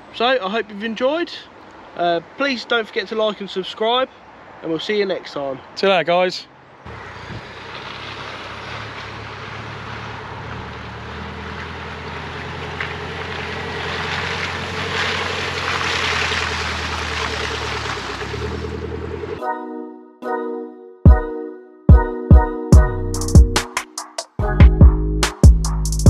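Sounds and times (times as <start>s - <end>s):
vehicle engine at low revs: 6.9s - 19.4s
wind noise: 7.2s - 7.6s.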